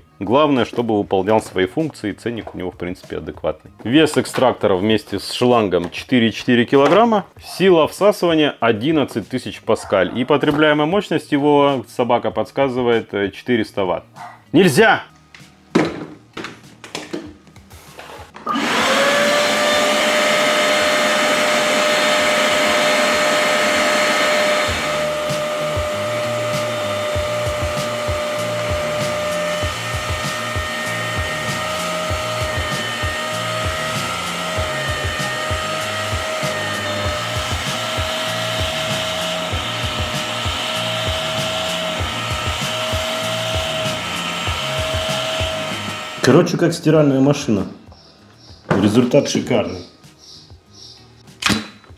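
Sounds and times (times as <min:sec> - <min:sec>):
carpet extractor motor whining: 0:18.4 - 0:46.3.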